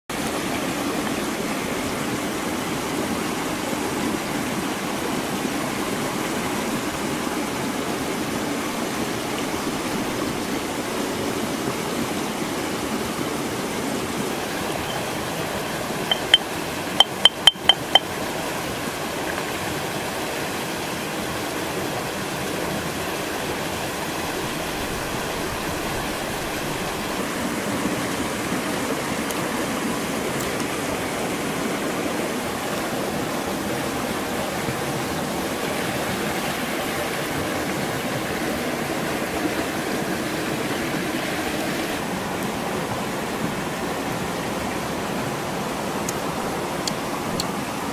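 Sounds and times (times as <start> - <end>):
running water: 0.1 - 47.9
stone pestle clinking on mortar: 16.1 - 16.4, 17.0 - 18.0.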